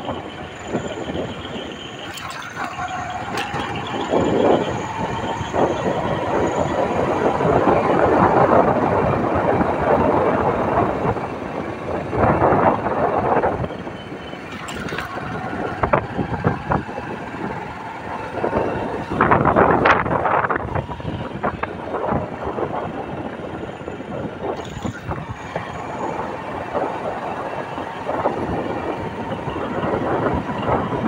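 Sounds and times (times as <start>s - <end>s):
motorcycle engine and rattle: 0.0s - 31.0s
wind buffeting microphone: 0.0s - 31.0s.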